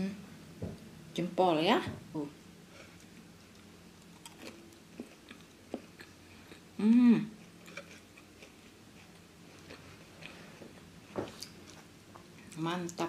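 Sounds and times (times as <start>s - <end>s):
person chewing: 2.7s - 12.6s
person humming: 6.8s - 7.4s.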